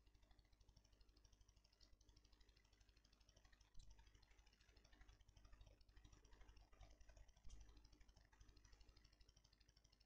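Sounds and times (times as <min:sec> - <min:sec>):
faint low hum: 0:00.0 - 0:10.0.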